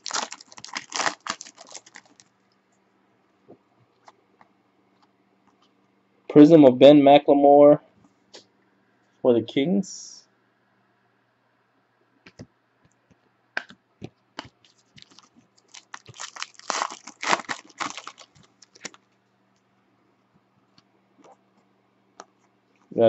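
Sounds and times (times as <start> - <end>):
card pack wrapper tearing and crinkling: 0.0 - 2.3, 14.6 - 19.0.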